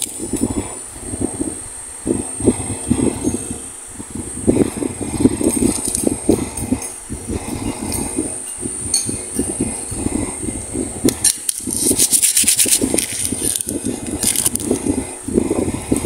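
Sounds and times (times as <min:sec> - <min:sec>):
plastic candy wrapper crinkling: 0:11.2 - 0:14.7.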